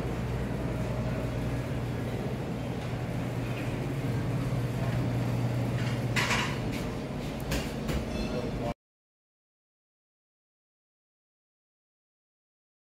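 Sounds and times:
low mechanical hum: 0:00.0 - 0:08.8.

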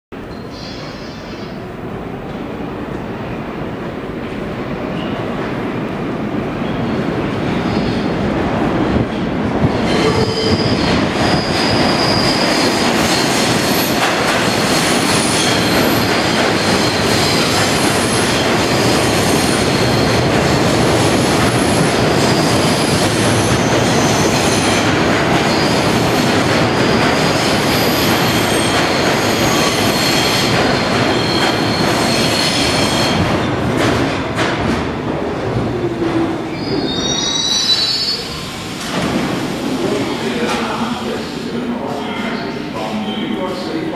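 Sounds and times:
train wheels rumbling on rails: 0:00.7 - 0:42.1
high wheel squeals: 0:09.9 - 0:12.8, 0:36.5 - 0:38.6.

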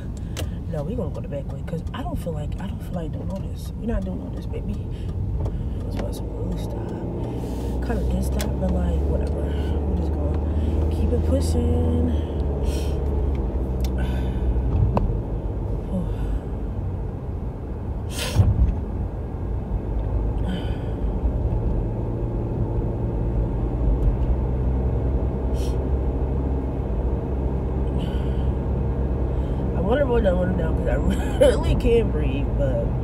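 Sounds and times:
car engine and road rumble: 0:00.0 - 0:33.0
short hissing noises: 0:18.1 - 0:18.5.

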